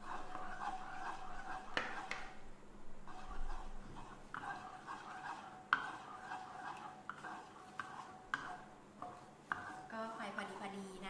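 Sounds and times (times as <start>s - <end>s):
spatula scraping sauce in wok: 0.0s - 2.4s, 3.0s - 10.8s.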